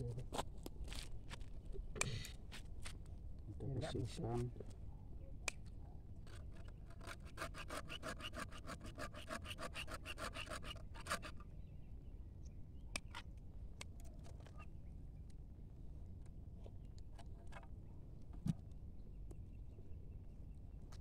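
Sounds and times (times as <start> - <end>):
metal blade scraping wood: 6.3 - 11.4.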